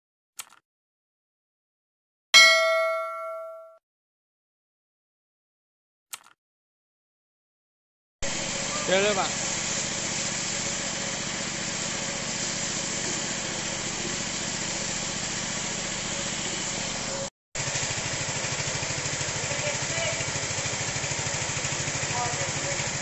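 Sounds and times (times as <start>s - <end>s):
pump pulsing: 8.2s - 23.0s
water jet hissing on floor: 8.2s - 23.0s.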